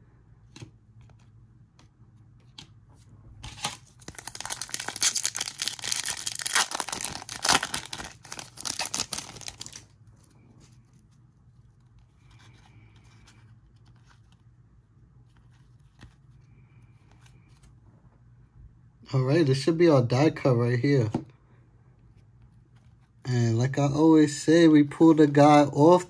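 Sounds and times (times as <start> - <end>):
wrapper tearing and crinkling: 3.5 - 9.9.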